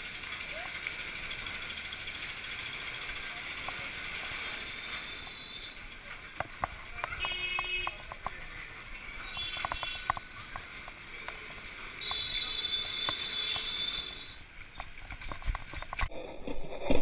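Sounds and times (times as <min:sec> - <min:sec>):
bicycle clicks and rattles: 0:00.0 - 0:16.1
high steady tone: 0:12.0 - 0:14.5.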